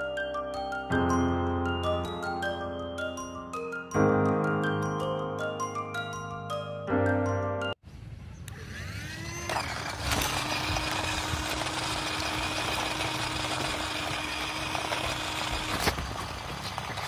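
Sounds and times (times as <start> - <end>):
small electric motor whirring: 8.4 - 17.0
wheels hissing over concrete: 8.7 - 17.0.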